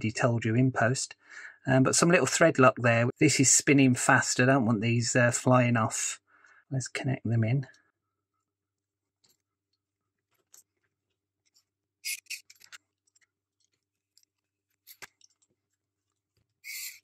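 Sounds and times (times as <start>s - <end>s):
small screws clicking and scraping: 10.2s - 17.0s.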